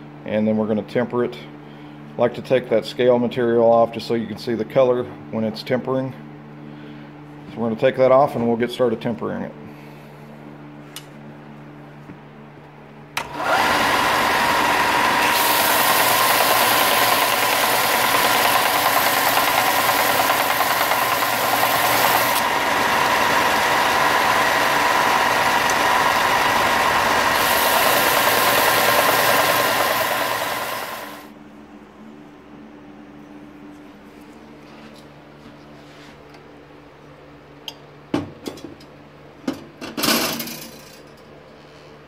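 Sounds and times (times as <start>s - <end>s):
belt sander whining: 13.2s - 31.3s
blade grinding on belt: 13.4s - 31.3s.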